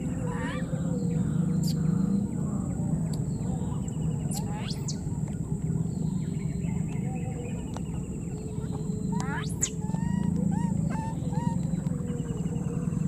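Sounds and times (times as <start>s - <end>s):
steady high whine: 0.0s - 13.0s
steady low hum: 0.0s - 13.0s
thin rising squeaks or chirps: 8.6s - 11.8s.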